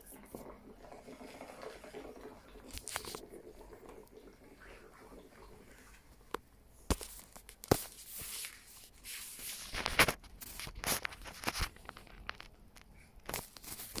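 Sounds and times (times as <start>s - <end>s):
crinkling and rustling: 2.6s - 3.3s, 5.9s - 14.0s.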